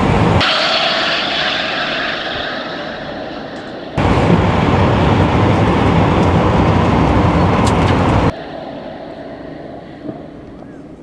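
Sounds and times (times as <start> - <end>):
rushing roar of wind and road noise: 3.9 - 8.4.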